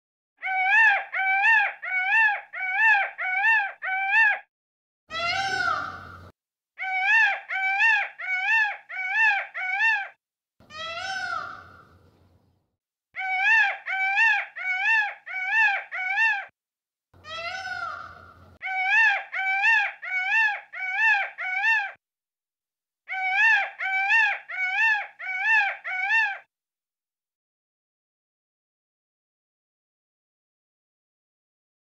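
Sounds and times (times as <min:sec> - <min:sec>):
peacocks calling: 0:05.1 - 0:12.2, 0:17.2 - 0:22.0.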